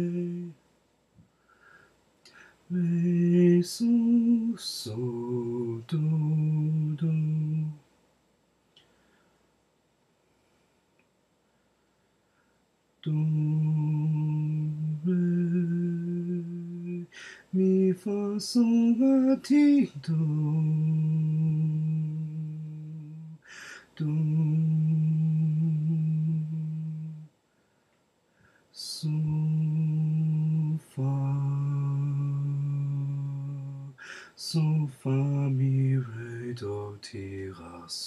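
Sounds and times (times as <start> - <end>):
man singing slow melody: 0.0 - 0.6, 2.2 - 7.9, 13.0 - 27.4, 28.7 - 38.0
breaths: 1.2 - 2.7, 8.8 - 9.5, 11.5 - 12.7, 17.1 - 17.6, 23.4 - 24.0, 27.4 - 28.8, 34.0 - 34.4.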